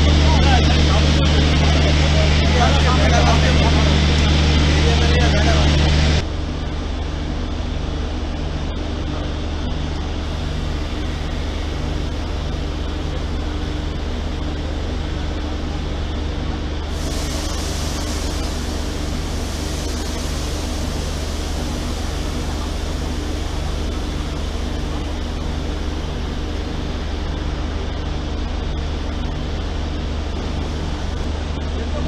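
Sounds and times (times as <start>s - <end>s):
locomotive machinery humming: 7.8s - 32.0s
high hiss: 16.9s - 26.3s.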